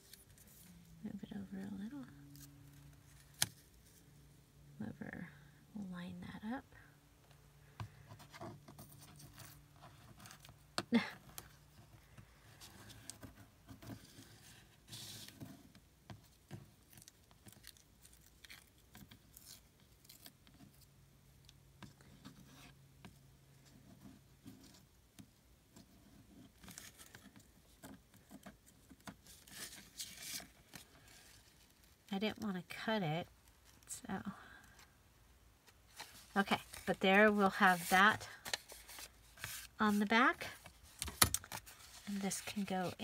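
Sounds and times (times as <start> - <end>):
paper rustling and tearing: 35.9 - 43.0.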